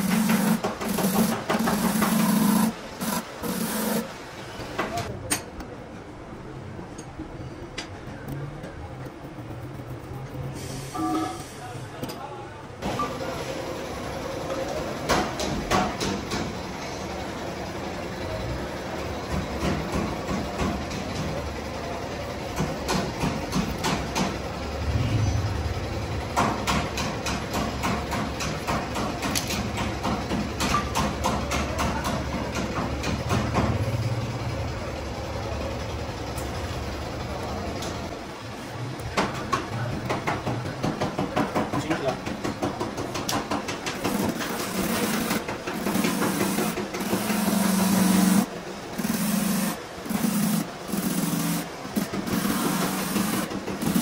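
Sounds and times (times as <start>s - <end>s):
heavy machinery humming: 0.0s - 4.8s, 21.3s - 28.2s, 44.0s - 54.0s
knocks and clanks: 22.6s - 33.8s.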